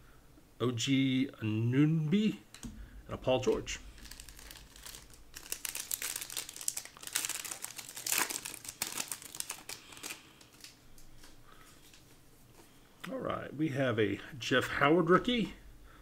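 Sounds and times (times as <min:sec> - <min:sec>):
plastic wrapper crinkling: 0:03.4 - 0:12.0.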